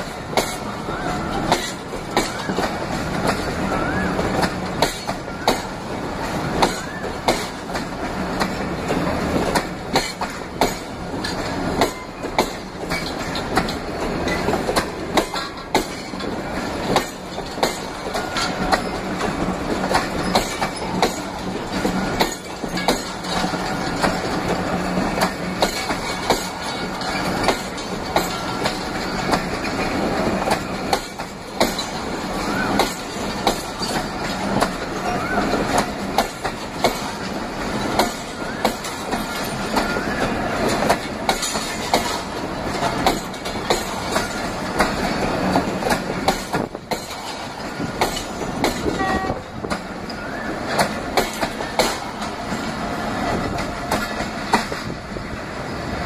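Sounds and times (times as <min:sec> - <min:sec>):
train rumble: 0:00.0 - 0:56.0
train wheels clattering over rail joints: 0:00.0 - 0:56.0
faint wheel squeals: 0:35.0 - 0:35.8.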